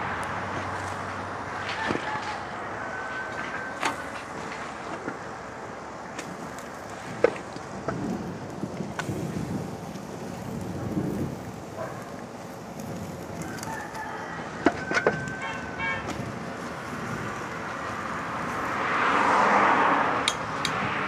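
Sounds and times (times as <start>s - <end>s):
broad rushing noise: 0.0s - 21.0s
outdoor background noise: 0.0s - 21.0s
rooster crowing: 1.6s - 4.3s, 13.4s - 16.0s.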